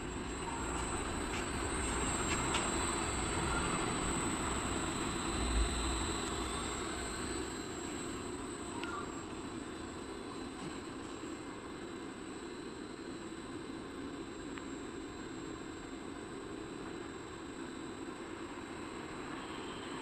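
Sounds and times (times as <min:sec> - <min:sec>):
blender machine running: 0:00.0 - 0:09.7.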